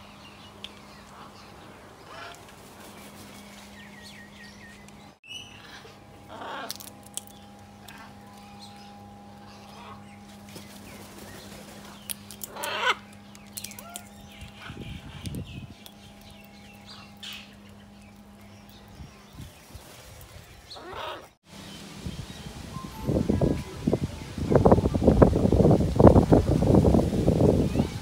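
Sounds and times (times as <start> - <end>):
faint steady hum: 0.0 - 28.0
macaws squawking: 1.1 - 2.5, 5.3 - 10.6, 11.8 - 18.5, 20.7 - 21.4.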